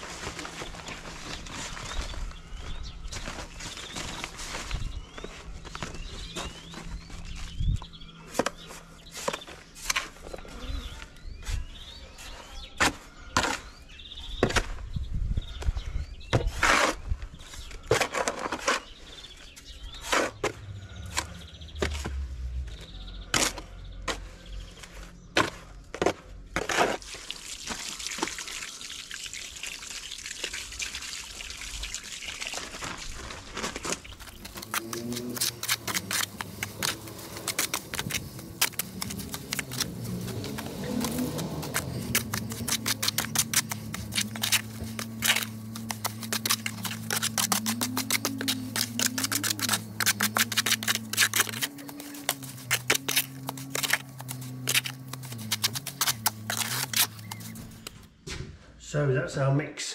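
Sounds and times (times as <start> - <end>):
trowel scraping in plastic tub: 33.6 - 58.1.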